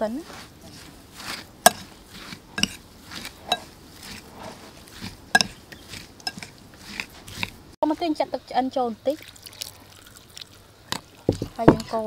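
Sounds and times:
soft swishes of moist ingredients: 0.0 - 12.0
metal spoon clinking on glass bowl: 5.4 - 5.6.

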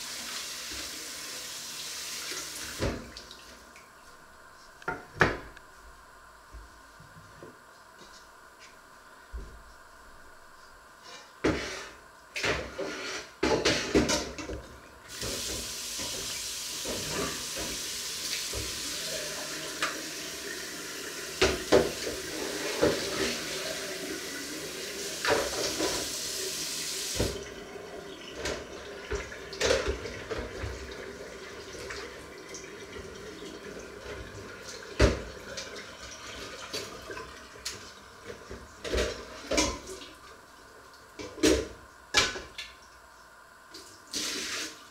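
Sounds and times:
pot being scrubbed: 12.7 - 13.9, 21.9 - 26.2.

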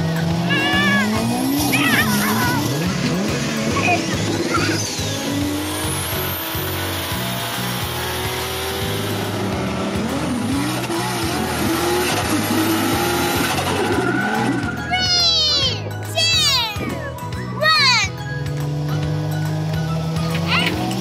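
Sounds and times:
background music: 0.0 - 21.0
car engine revving: 0.0 - 21.0.

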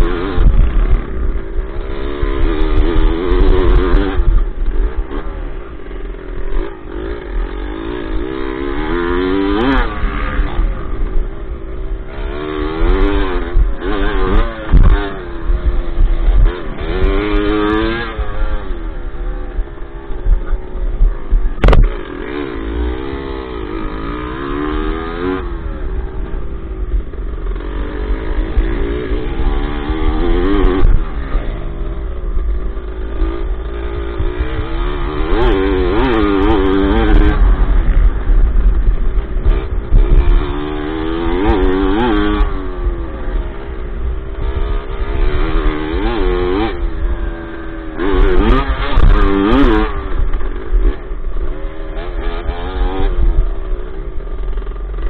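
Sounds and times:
dirt bike engine revving: 0.0 - 55.0
low rumble on microphone: 17.8 - 22.1
sharp knock: 21.6 - 21.9.

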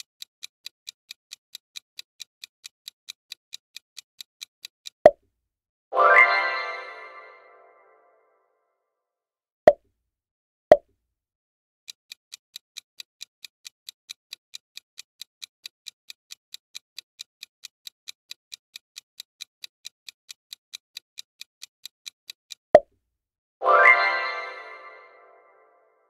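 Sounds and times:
clock-like ticking: 0.0 - 5.1, 11.9 - 22.6.

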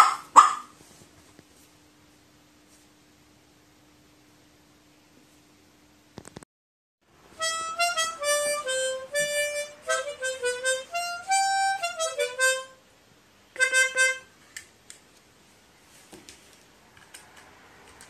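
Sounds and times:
harmonica playing a tune: 7.4 - 12.8, 13.6 - 14.3.

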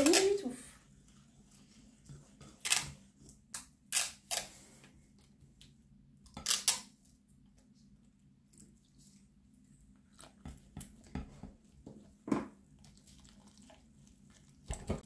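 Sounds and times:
whisk stirring flour: 0.0 - 3.5.

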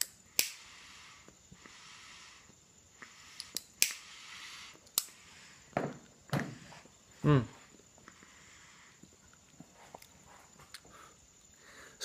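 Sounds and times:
lighter clicks: 0.0 - 0.7, 3.3 - 4.1, 4.8 - 5.2
soft hissy pipe puffs: 0.0 - 12.0.

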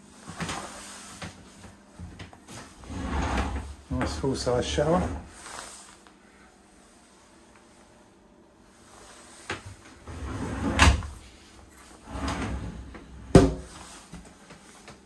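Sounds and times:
sliding door rolling on rollers: 2.8 - 5.2, 10.1 - 11.1, 12.0 - 13.3.

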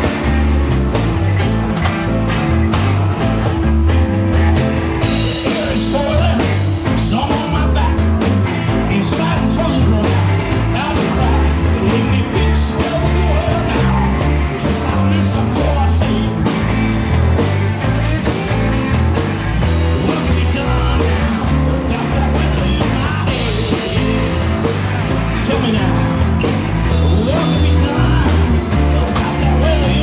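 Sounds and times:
bass guitar: 0.0 - 30.0
drums: 0.0 - 30.0
electric guitars: 0.0 - 30.0
man singing: 5.0 - 18.5, 19.6 - 30.0.

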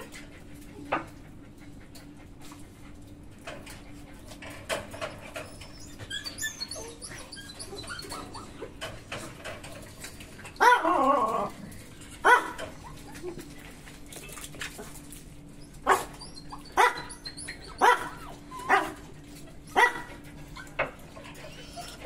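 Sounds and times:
dog yelping: 5.0 - 9.0, 10.5 - 13.6, 15.5 - 22.0
dogs barking: 10.4 - 13.7, 15.6 - 22.0.

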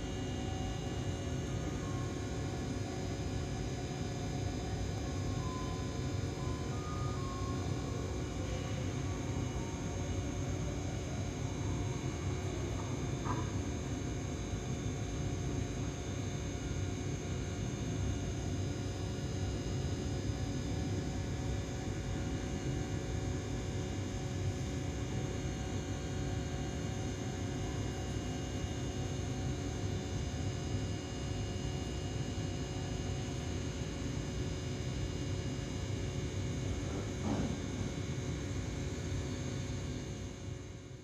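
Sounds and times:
electric train humming: 0.0 - 13.1.

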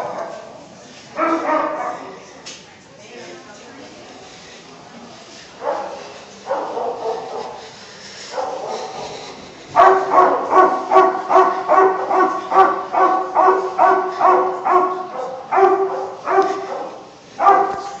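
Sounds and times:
dog barking: 0.0 - 0.5, 1.2 - 2.2, 5.6 - 7.6, 8.3 - 9.2, 9.8 - 18.0.

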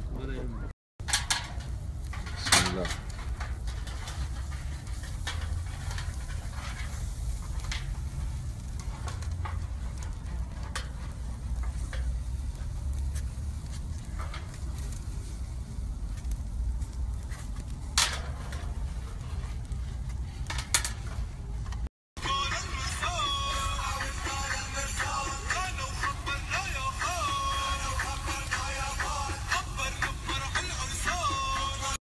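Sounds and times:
kebabs sizzling on a grill: 1.0 - 21.6, 22.2 - 32.0
low rumble: 1.4 - 31.3.

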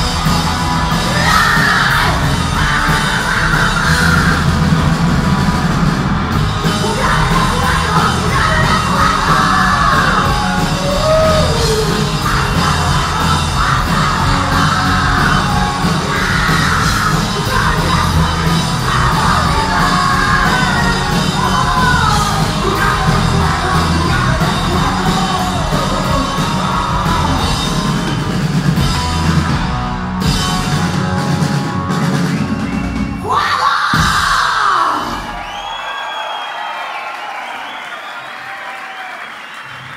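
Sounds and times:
punk rock band playing: 0.0 - 35.6
singer yelling vocals: 0.9 - 4.8, 6.6 - 28.0, 32.3 - 35.4.

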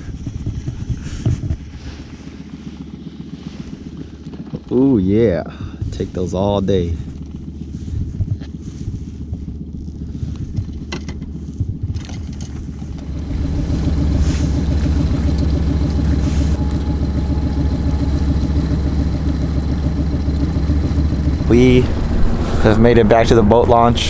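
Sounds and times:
truck engine idling: 12.6 - 24.0
low rumble: 12.8 - 24.0.

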